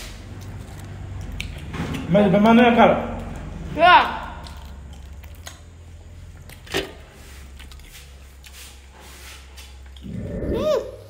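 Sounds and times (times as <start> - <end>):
food handling clicks and rustles: 4.4 - 8.8.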